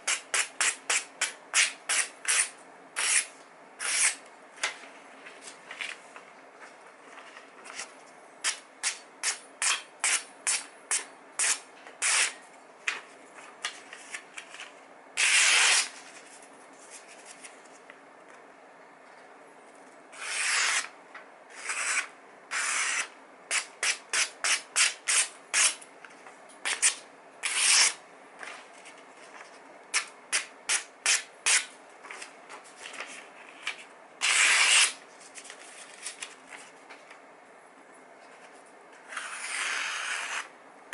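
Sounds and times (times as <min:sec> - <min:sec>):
knife slicing paper: 0:00.1 - 0:04.2, 0:15.2 - 0:16.0, 0:20.2 - 0:20.9, 0:21.5 - 0:25.8, 0:26.7 - 0:28.0, 0:33.6 - 0:36.2.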